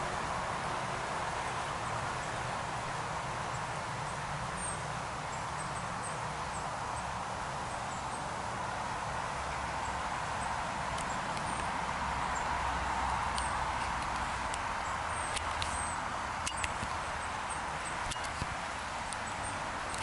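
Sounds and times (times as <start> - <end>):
stream water rushing: 0.0 - 20.0.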